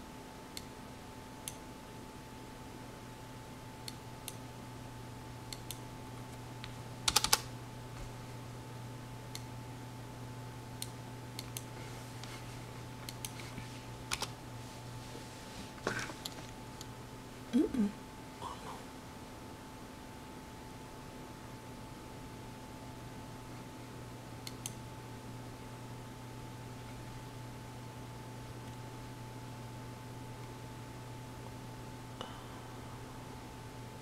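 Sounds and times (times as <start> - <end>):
low electrical hum: 0.0 - 34.0
keyboard typing: 6.6 - 7.5.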